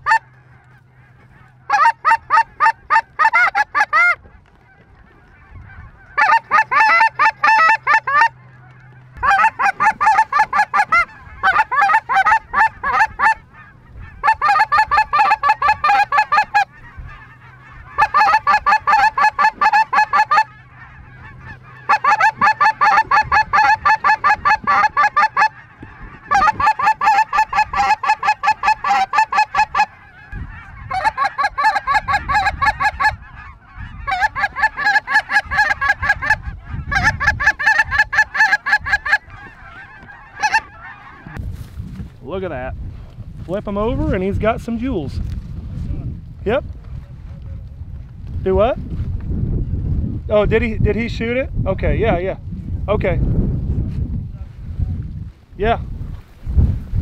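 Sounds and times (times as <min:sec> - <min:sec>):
goose honking: 0:00.0 - 0:41.7.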